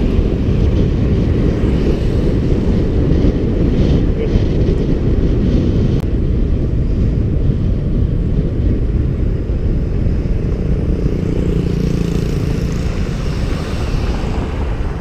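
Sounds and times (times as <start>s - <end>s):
wind buffeting microphone: 0.0s - 15.0s
car passing: 9.8s - 15.0s.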